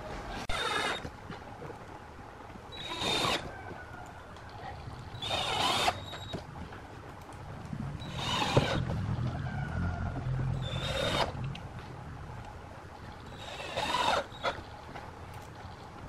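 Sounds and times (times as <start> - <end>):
cordless drill driving screws: 2.8 - 3.5, 5.1 - 6.4, 8.0 - 8.8, 13.3 - 14.6.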